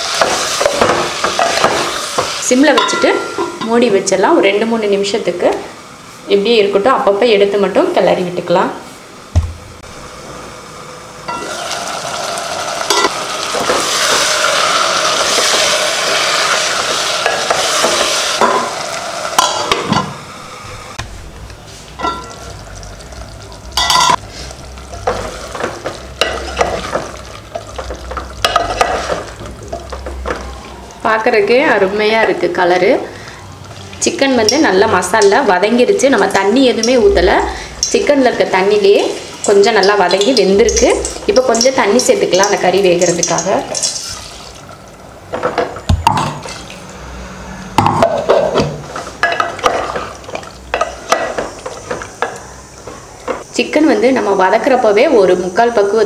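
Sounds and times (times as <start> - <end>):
light sizzle: 9.8 - 47.2, 48.8 - 56.0.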